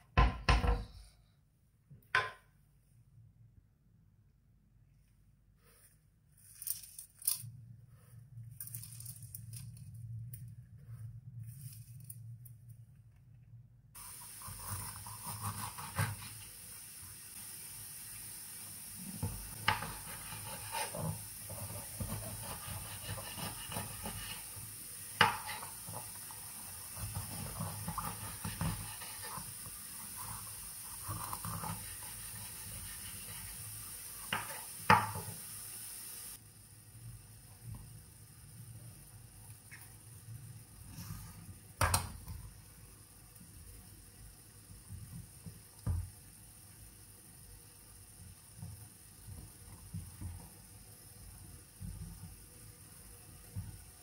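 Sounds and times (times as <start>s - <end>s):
steady hiss: 14.0s - 54.0s.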